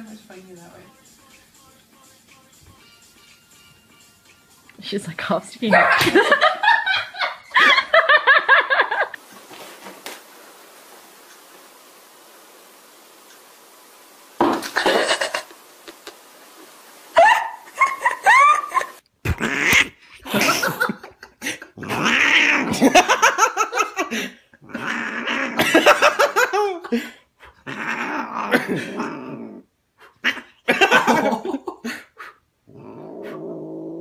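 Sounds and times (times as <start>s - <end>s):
cat growling and yowling: 19.3s - 20.0s, 21.8s - 23.1s, 24.6s - 25.9s, 27.6s - 30.6s, 32.6s - 34.0s.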